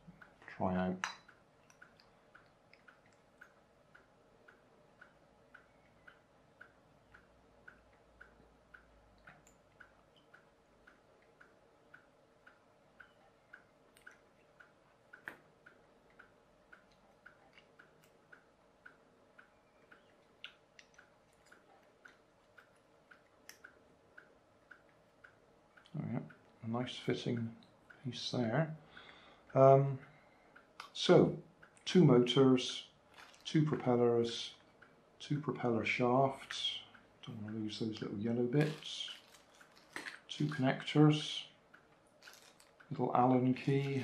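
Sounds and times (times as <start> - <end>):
faint regular ticking: 0.0 - 44.0
plastic parts clicking: 33.1 - 33.5, 38.6 - 40.6, 42.2 - 42.9.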